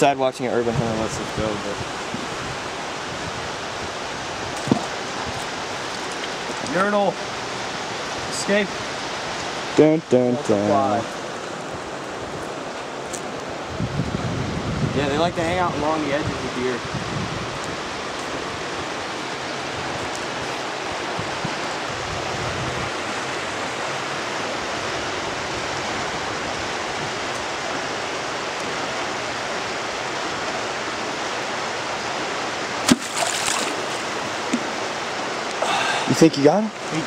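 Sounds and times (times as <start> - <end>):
water rushing over spillway: 0.0 - 37.0
spear splashing into water: 32.8 - 34.1.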